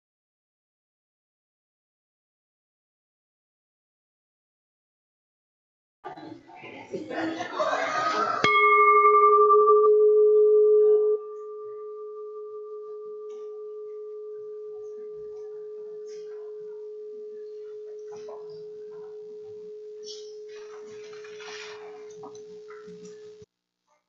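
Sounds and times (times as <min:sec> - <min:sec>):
singing bowl ringing: 0:08.4 - 0:23.5.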